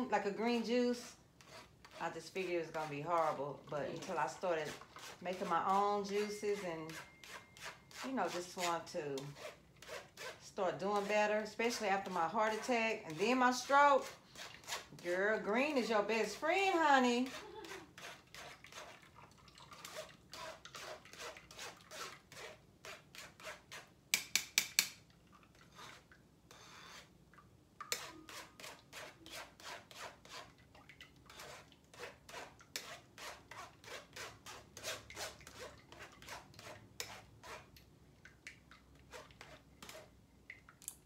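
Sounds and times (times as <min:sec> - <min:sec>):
spoon scraping mesh strainer: 0:00.6 - 0:16.4, 0:27.9 - 0:30.5, 0:31.3 - 0:37.8.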